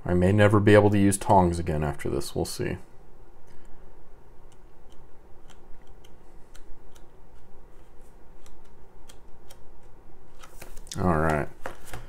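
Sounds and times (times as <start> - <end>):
paper pages rustling: 10.3 - 12.0.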